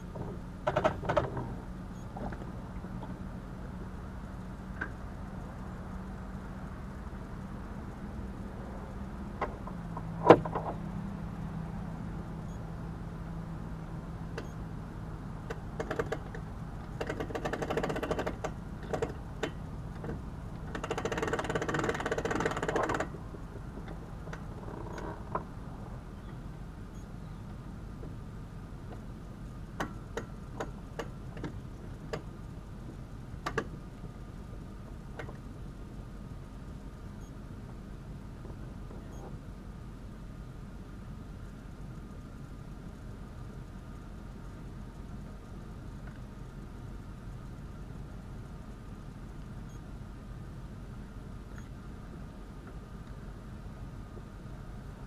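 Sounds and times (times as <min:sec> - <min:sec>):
trailer winch winding: 0:00.0 - 0:02.4, 0:15.4 - 0:25.4
engine idling hum: 0:00.0 - 0:55.0.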